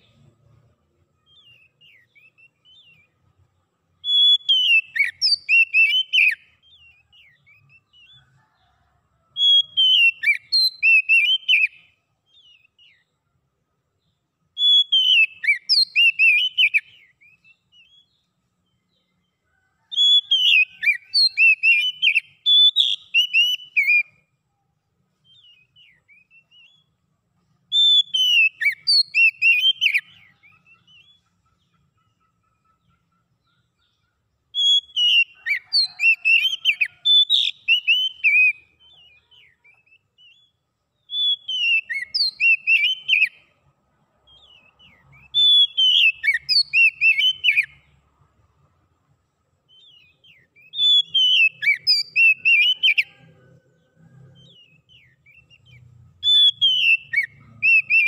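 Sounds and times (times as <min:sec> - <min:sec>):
bird singing whistled phrases: 0:01.2 - 0:03.2, 0:04.0 - 0:08.2, 0:09.4 - 0:13.1, 0:14.6 - 0:18.2, 0:20.0 - 0:24.2, 0:25.2 - 0:26.9, 0:27.7 - 0:31.2, 0:34.6 - 0:43.4, 0:44.3 - 0:47.8, 0:49.7 - 0:53.3, 0:54.0 - 0:58.0.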